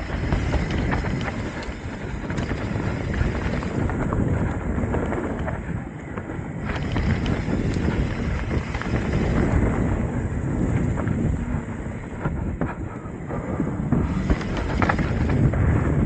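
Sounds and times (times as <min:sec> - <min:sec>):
bike clattering on wooden boards: 0:00.0 - 0:05.6, 0:06.2 - 0:09.9, 0:13.9 - 0:16.0
bike tyres and frame rumbling: 0:00.0 - 0:16.0
wind buffeting microphone: 0:00.0 - 0:16.0.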